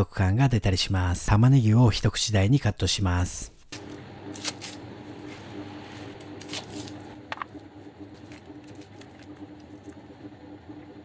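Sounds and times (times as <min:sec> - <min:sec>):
faint steady hum: 0:03.8 - 0:11.0.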